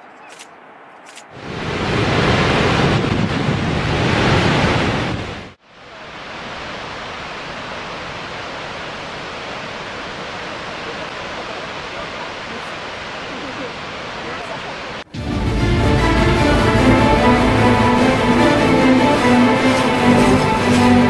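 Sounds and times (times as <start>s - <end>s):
steady rush of water: 5.5s - 21.0s
water roaring from dam outlet: 5.6s - 15.0s.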